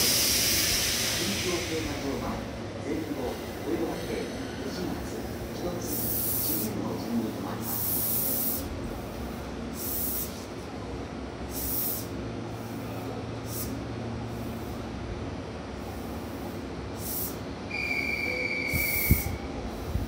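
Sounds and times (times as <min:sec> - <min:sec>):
train hissing compressed air: 0:00.0 - 0:10.7, 0:11.4 - 0:20.0
low hum of running equipment: 0:04.8 - 0:20.0.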